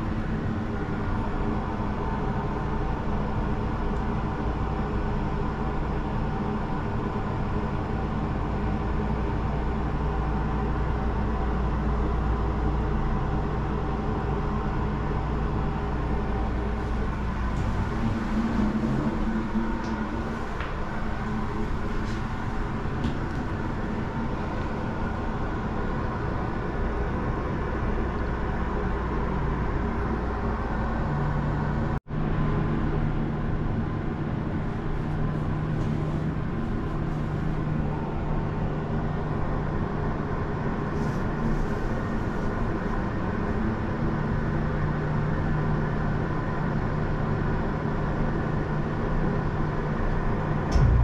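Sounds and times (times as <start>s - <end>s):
gondola hum and rumble: 0.0s - 51.0s
low drone: 15.0s - 28.4s, 50.7s - 51.0s.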